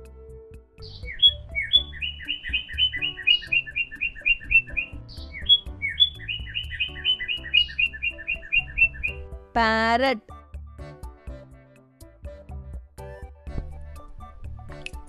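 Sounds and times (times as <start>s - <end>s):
soft background music: 0.0s - 15.0s
parrot chirping: 0.8s - 9.2s.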